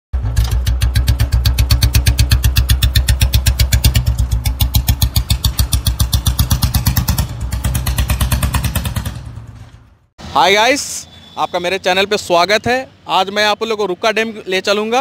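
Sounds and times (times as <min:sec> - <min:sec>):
motorcycle engine at low revs: 0:00.2 - 0:09.8.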